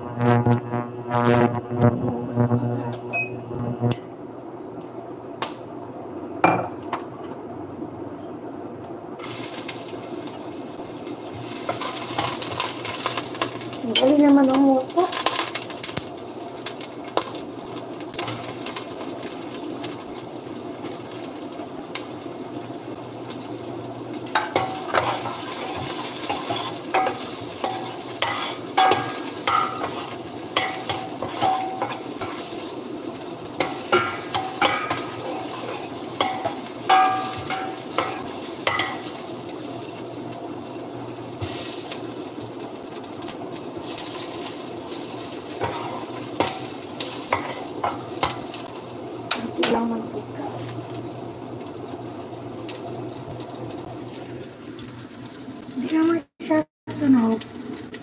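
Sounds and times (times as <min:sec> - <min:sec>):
metal spoon stirring in a pot: 0:24.3 - 0:32.6, 0:33.6 - 0:39.1, 0:45.5 - 0:48.6.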